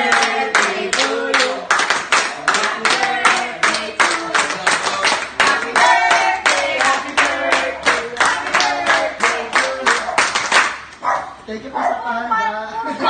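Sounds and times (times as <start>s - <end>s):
people singing: 0.0s - 10.3s
people clapping in rhythm: 0.0s - 11.0s.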